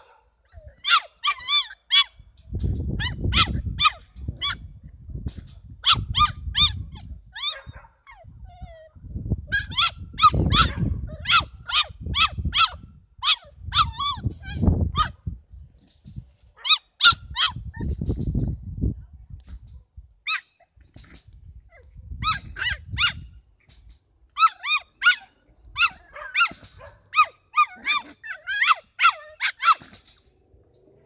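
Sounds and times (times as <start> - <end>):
puppies yapping: 0.0 - 2.2, 16.6 - 18.0, 24.4 - 30.2.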